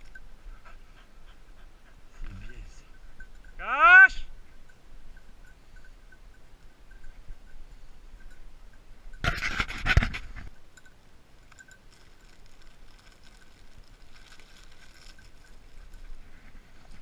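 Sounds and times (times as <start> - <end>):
dog panting softly: 0.5 - 3.0
rustling and knocking: 9.2 - 10.6.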